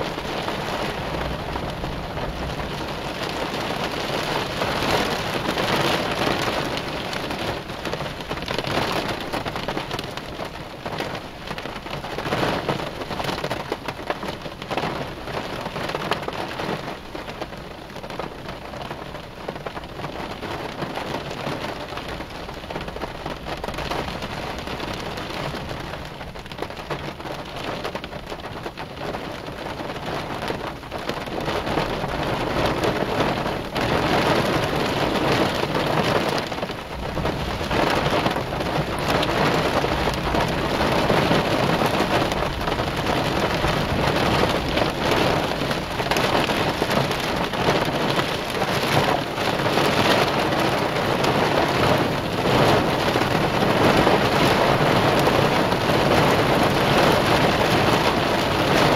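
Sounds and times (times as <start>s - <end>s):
thunder rumbling: 0.0s - 10.0s, 31.4s - 58.9s
heavy rain on a car: 0.0s - 58.9s.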